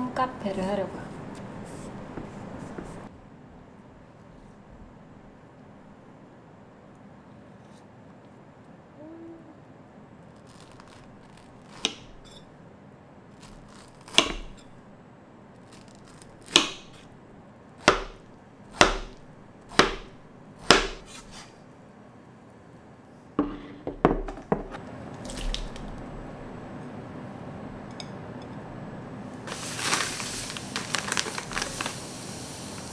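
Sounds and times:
knife knocking on wooden board: 23.4s - 24.8s.

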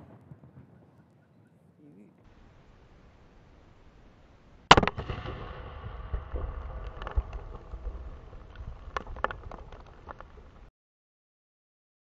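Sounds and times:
low rumble: 2.3s - 10.7s
loud firework blast: 4.7s - 9.7s
debris ticking: 4.7s - 10.7s.

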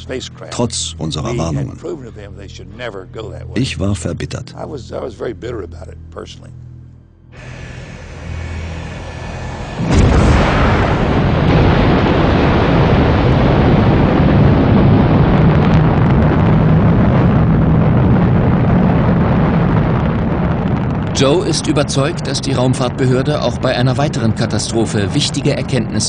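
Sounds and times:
deep rocket rumble: 0.0s - 6.2s, 7.4s - 26.0s
rocket exhaust rush: 7.4s - 26.0s.

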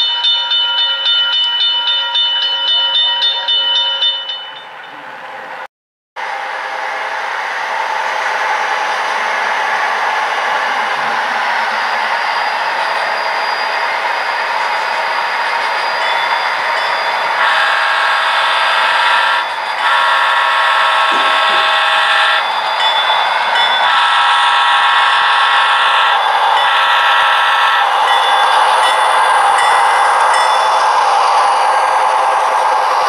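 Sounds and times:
model diesel locomotive engine: 0.0s - 33.0s
locomotive horn blasts: 17.4s - 22.4s, 23.9s - 27.9s.

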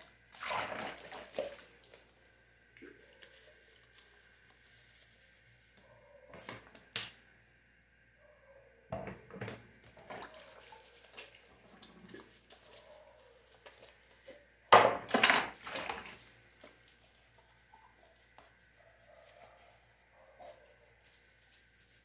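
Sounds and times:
dishes clinking in sink: 14.7s - 16.0s.

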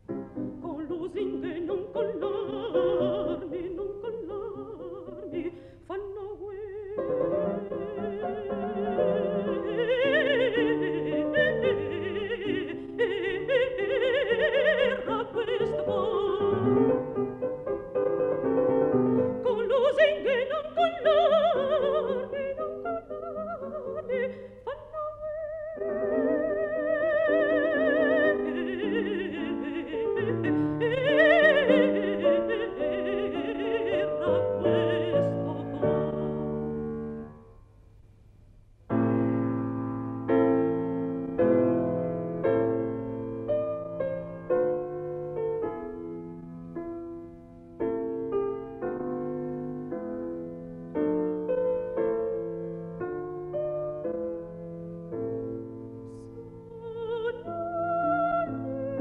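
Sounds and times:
piano accompaniment: 0.0s - 37.6s, 38.9s - 59.0s
woman singing opera: 0.6s - 17.2s, 19.3s - 36.5s, 56.1s - 59.0s.

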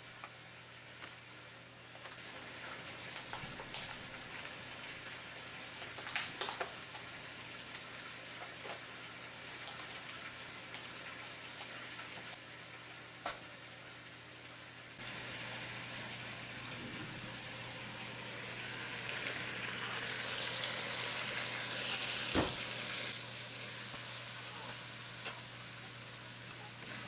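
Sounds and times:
chicken sizzling in a pan: 0.0s - 27.0s.

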